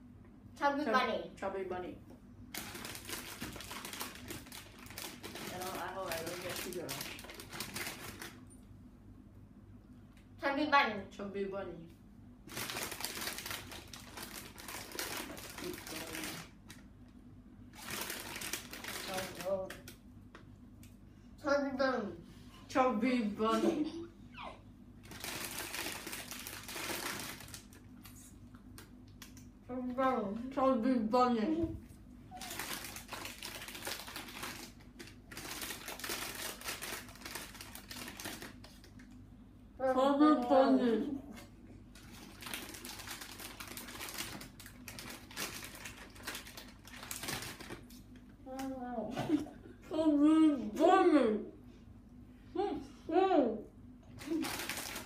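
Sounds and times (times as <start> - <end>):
plastic packet crinkling: 2.5 - 8.4, 12.4 - 16.9, 17.7 - 20.0, 25.0 - 29.0, 32.3 - 39.1, 42.0 - 48.2, 54.2 - 55.0
rustling and crinkling: 31.8 - 39.1, 41.4 - 48.3.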